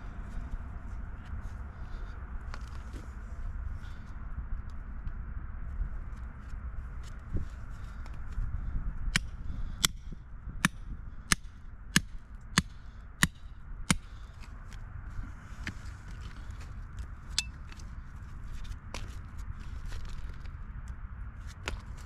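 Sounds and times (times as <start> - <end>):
hammer striking rock: 10.6 - 14.1.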